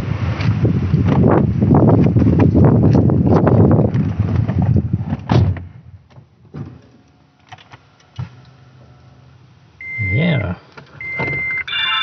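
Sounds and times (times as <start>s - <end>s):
wind noise: 0.0s - 6.0s
car door shutting: 10.8s - 11.6s.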